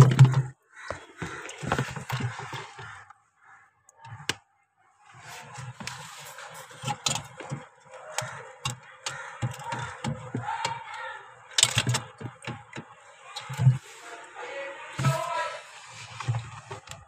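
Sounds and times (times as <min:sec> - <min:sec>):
ice knocking and cracking: 0:00.0 - 0:03.1, 0:06.7 - 0:13.8.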